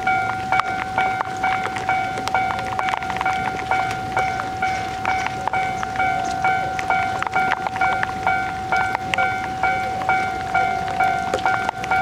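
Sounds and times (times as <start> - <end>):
level crossing warning bell: 0.0 - 12.0.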